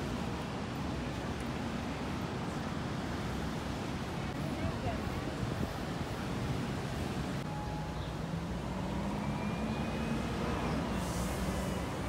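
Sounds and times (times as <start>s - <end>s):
traffic rumble: 0.0s - 12.0s
engine hum rising in pitch: 7.5s - 12.0s.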